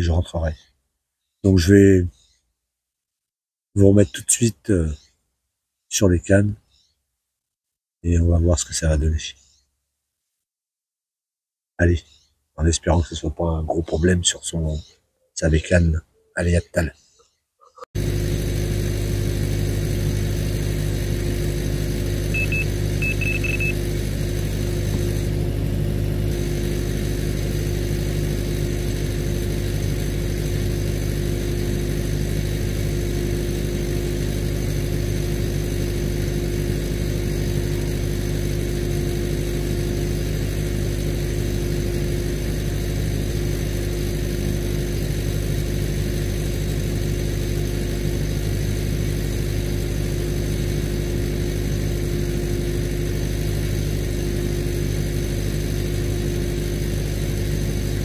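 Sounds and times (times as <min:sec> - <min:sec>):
pump engine droning: 0:18.0 - 0:58.0.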